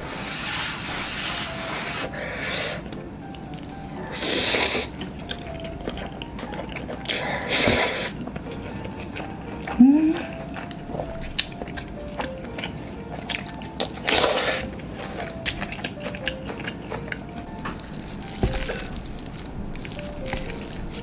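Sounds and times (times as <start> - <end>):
soft background music: 0.0 - 21.0
wet chewing: 2.4 - 21.0
noodles squishing: 2.8 - 21.0.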